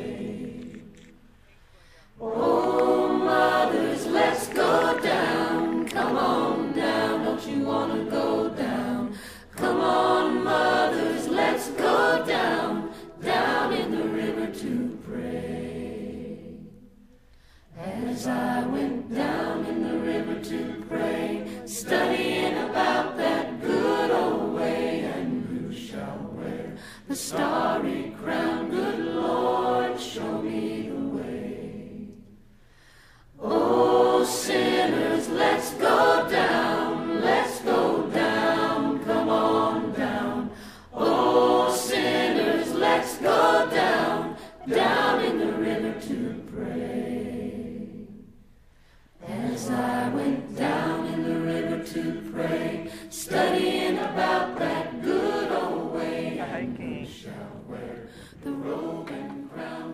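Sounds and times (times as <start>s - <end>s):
a cappella choir singing: 0.0s - 59.9s.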